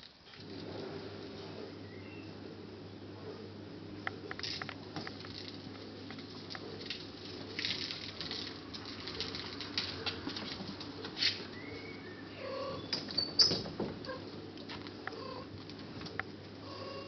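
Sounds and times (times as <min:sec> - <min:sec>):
kittens scrabbling paws: 0:04.4 - 0:11.4.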